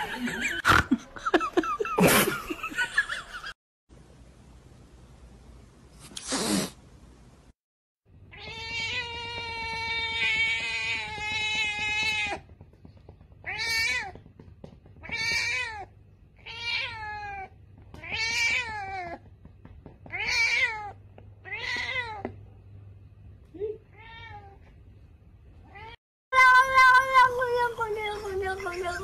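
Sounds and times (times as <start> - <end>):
cat meowing: 8.3 - 12.4, 15.0 - 19.2.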